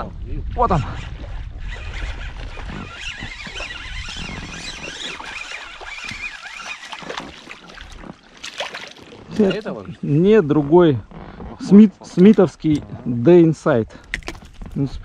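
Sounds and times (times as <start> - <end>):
wind rumble on microphone: 0.0 - 6.4, 12.6 - 15.0.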